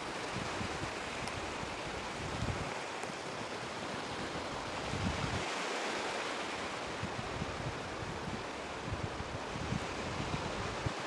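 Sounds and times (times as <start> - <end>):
wind buffeting microphone: 0.3 - 2.9, 4.4 - 5.5.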